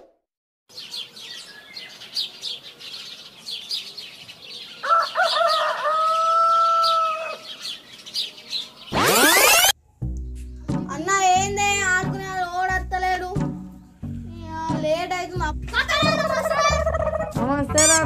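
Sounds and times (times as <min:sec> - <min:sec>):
small birds chirping: 0:00.7 - 0:10.7
rooster crowing: 0:04.8 - 0:07.5.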